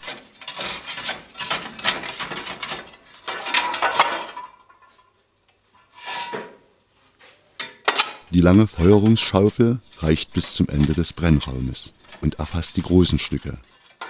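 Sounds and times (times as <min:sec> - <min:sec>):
shovel scraping metal firebox: 0:00.0 - 0:04.0, 0:05.8 - 0:06.6, 0:08.4 - 0:14.0.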